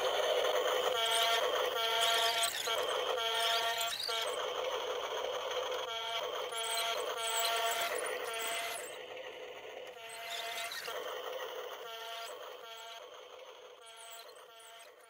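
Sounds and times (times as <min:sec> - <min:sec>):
toy gear motors whining: 0:00.0 - 0:15.0.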